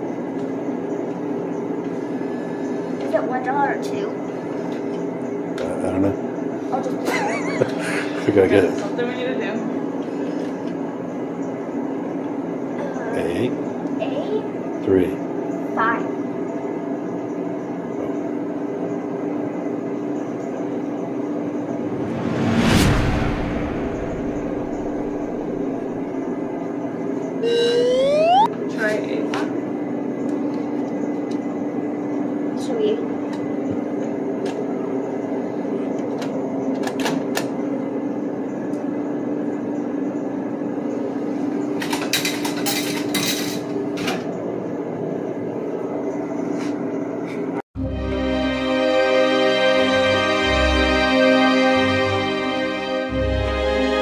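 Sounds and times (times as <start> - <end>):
vending machine hum: 0.0 - 8.7, 9.8 - 22.0, 24.8 - 28.9
short loud burst of noise: 21.8 - 26.0
vending machine motor hum: 27.4 - 28.5.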